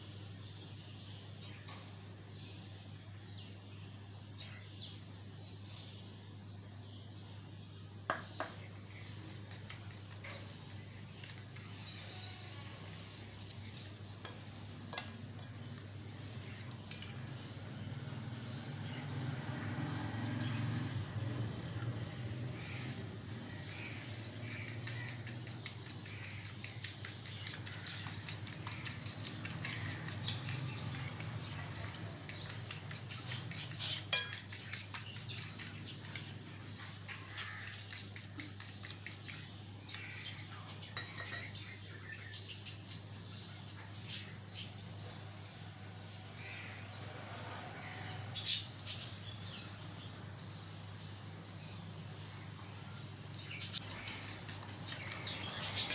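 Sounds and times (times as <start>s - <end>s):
fork whisking eggs in glass bowl: 8.5s - 18.1s, 23.3s - 40.0s, 53.7s - 55.9s
fork clinking on glass: 34.0s - 35.0s, 41.0s - 41.5s.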